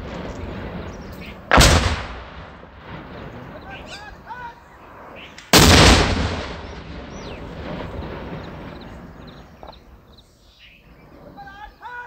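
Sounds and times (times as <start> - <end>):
rocket launcher blast: 0.0 - 3.9, 5.5 - 9.3
rolling echo: 0.0 - 10.4.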